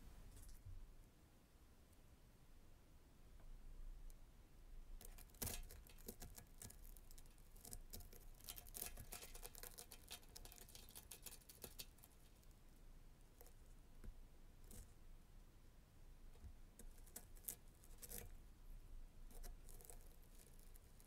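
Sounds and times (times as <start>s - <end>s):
metal pick scraping melted plastic: 5.0s - 12.4s.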